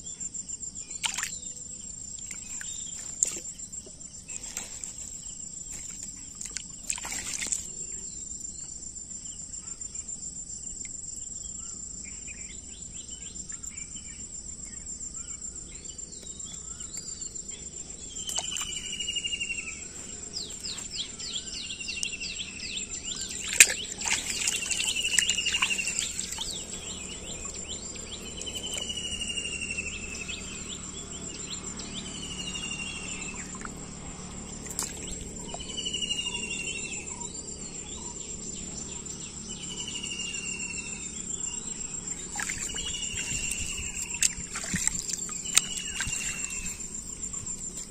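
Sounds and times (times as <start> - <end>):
insect chirring: 0.0 - 47.9
burst of quick chirps: 21.9 - 29.7.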